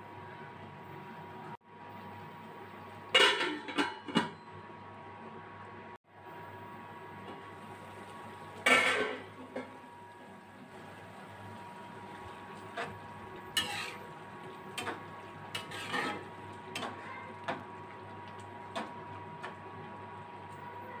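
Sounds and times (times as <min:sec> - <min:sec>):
spatula scraping metal pan: 0:13.6 - 0:14.1, 0:15.5 - 0:16.3.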